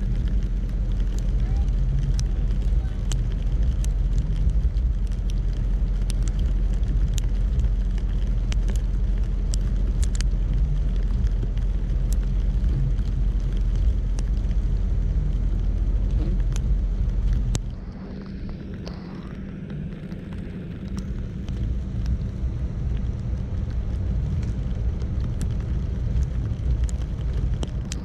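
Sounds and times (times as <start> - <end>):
car engine and road rumble: 0.0 - 28.0.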